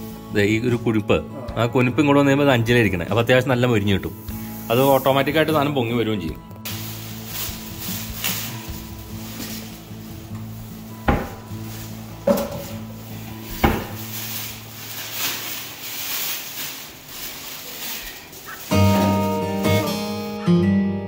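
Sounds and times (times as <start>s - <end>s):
kitchenware knocks: 11.0s - 11.5s, 12.2s - 12.9s, 13.5s - 14.0s.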